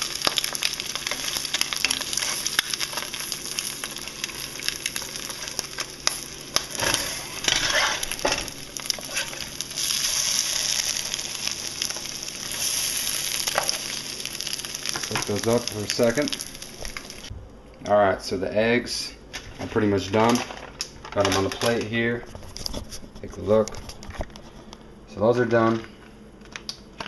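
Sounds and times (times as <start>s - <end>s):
eggs sizzling in a pan: 0.0s - 17.3s
spatula scraping a pan: 6.8s - 8.4s.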